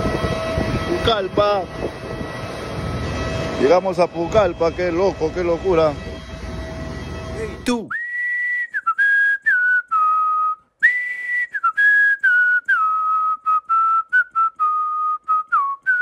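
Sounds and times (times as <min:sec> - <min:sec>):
person whistling a tune: 0:07.8 - 0:16.0.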